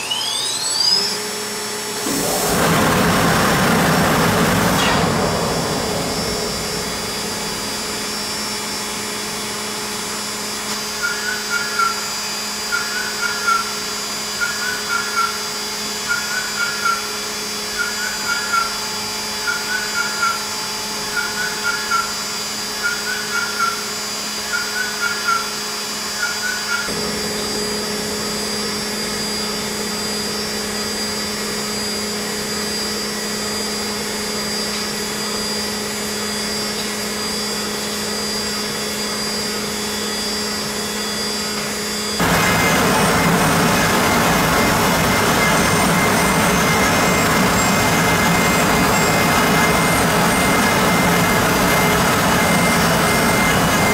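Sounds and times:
machine spindle hum: 0.0s - 53.9s
chirping cutting sound: 10.8s - 13.8s, 14.4s - 18.8s, 22.8s - 27.6s.

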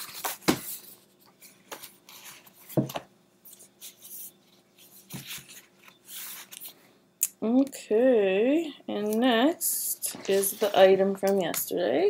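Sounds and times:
objects rustling on tabletop: 0.0s - 6.8s, 10.0s - 11.0s.

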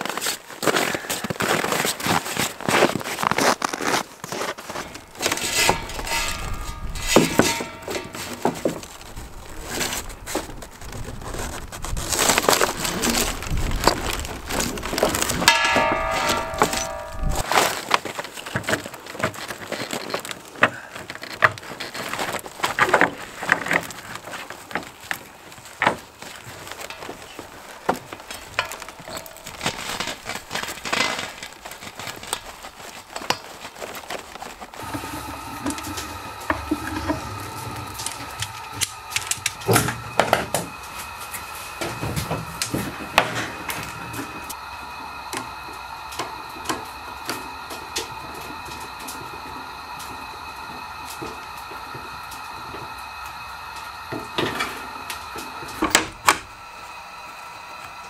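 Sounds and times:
hum of held tones: 12.8s - 17.5s, 34.8s - 58.0s.

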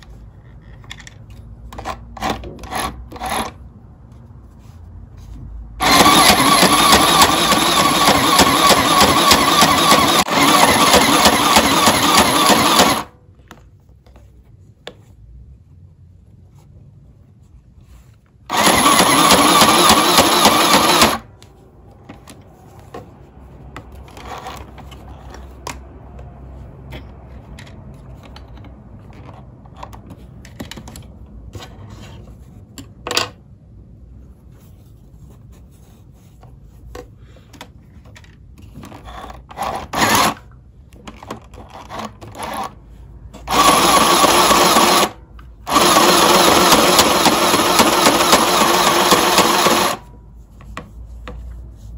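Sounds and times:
sewing machine clicks: 5.8s - 13.1s, 18.5s - 21.2s, 43.5s - 50.0s
sewing machine stitching: 5.8s - 13.1s, 18.5s - 21.3s, 39.5s - 40.4s, 43.4s - 50.1s.

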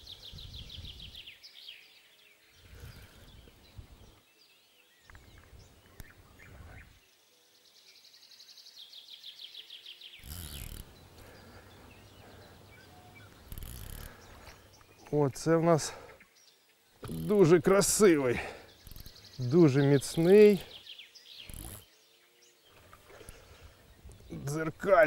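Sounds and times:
birds chirping: 0.0s - 25.0s
fishing reel ticking: 10.2s - 10.9s, 13.4s - 14.2s, 17.0s - 17.5s, 18.8s - 19.1s, 21.4s - 21.8s.

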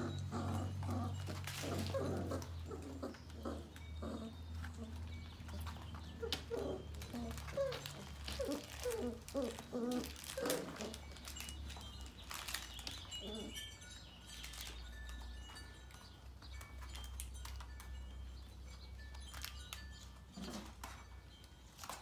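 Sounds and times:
puppies yipping: 0.0s - 16.1s.

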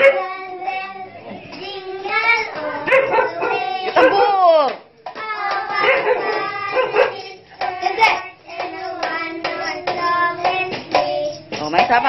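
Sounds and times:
children singing a carol: 0.0s - 4.3s, 5.1s - 11.6s
sharp taps beating time: 7.6s - 12.0s.

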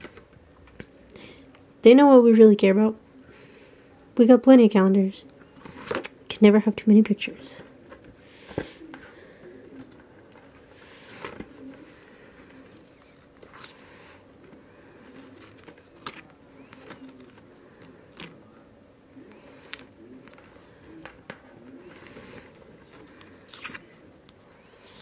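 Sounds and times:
calendar pages flipping: 9.8s - 18.6s, 19.4s - 25.0s.

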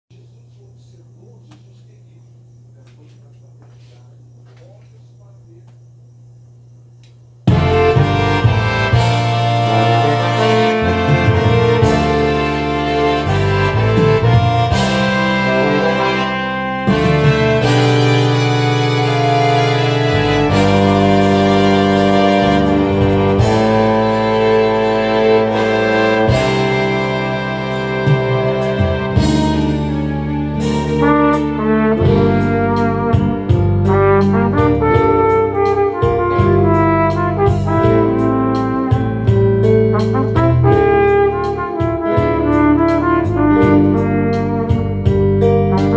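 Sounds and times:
percussion beat: 0.1s - 12.4s, 30.6s - 42.7s
sustained chords backing music: 0.1s - 45.9s
flugelhorn playing slow melody: 7.5s - 45.9s.

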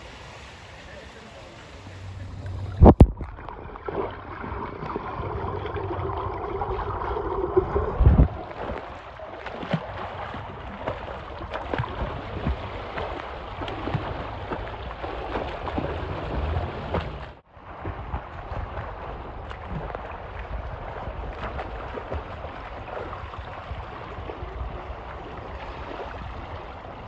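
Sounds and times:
muffled underwater sound: 0.0s - 14.8s
water splashing from swimming: 0.0s - 27.0s.

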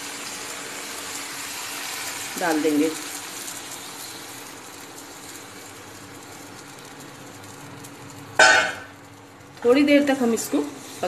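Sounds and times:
vegetables sizzling in a pan: 0.0s - 11.0s.

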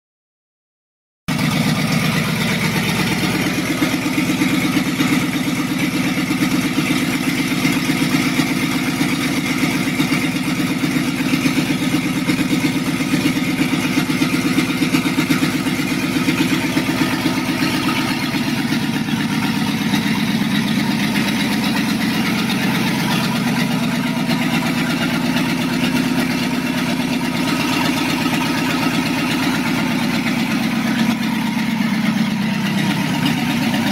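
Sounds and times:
truck engine idling: 1.3s - 33.9s.

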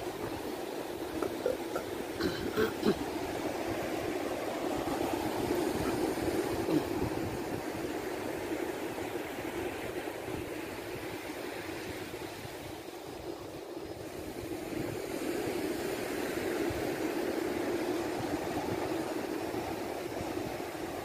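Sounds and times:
wind buffeting microphone: 0.0s - 15.7s
surf washing on sand: 0.0s - 21.0s.

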